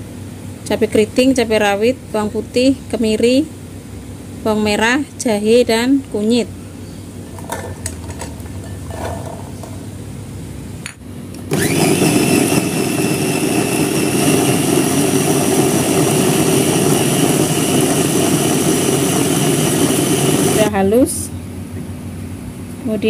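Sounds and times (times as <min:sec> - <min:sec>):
electric food chopper grinding: 0:11.4 - 0:20.7.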